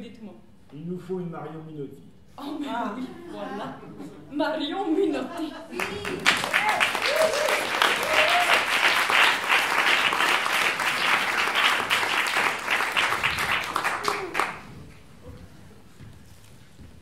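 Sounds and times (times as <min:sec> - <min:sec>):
audience applauding: 0:05.7 - 0:14.8.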